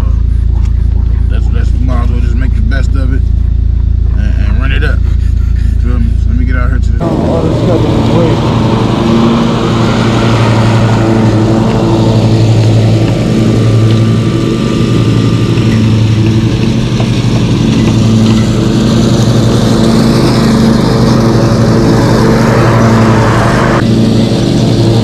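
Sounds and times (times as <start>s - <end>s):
lawn mower engine humming: 0.0s - 25.0s.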